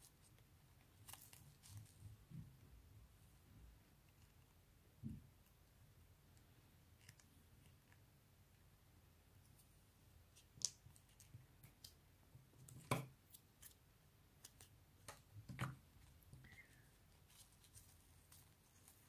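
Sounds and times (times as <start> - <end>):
ribbon rustling: 14.4 - 19.0.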